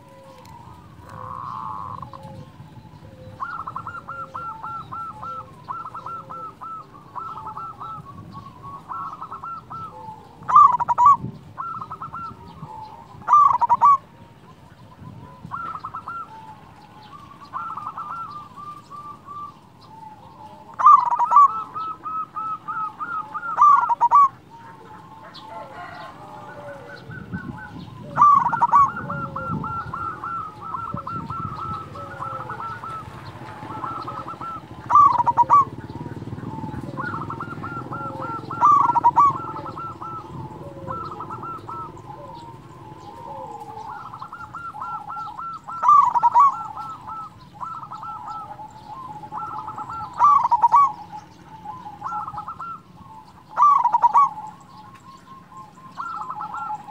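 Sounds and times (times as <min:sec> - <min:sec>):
dove cooing: 0:00.0 - 0:56.9.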